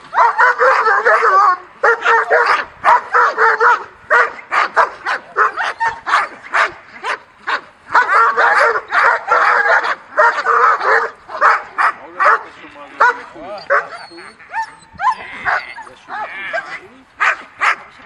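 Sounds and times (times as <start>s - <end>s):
dog barking rapidly: 0.1s - 18.0s.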